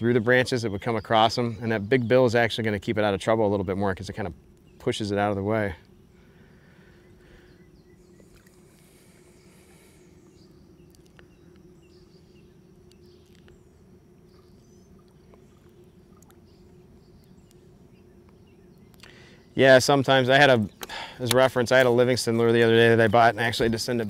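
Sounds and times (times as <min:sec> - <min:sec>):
faint low hum: 0:00.0 - 0:24.0
small ticks: 0:08.1 - 0:12.2, 0:12.8 - 0:19.3.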